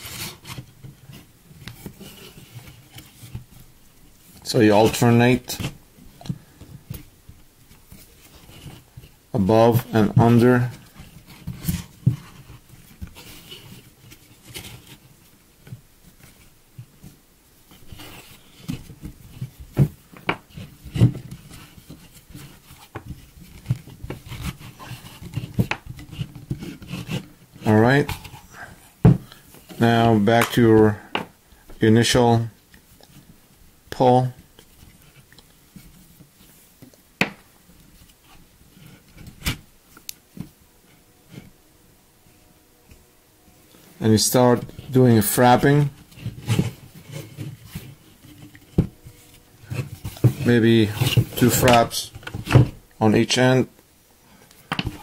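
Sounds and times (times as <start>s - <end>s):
rope rubbing over wooden poles: 7.8s - 30.2s, 40.4s - 52.8s.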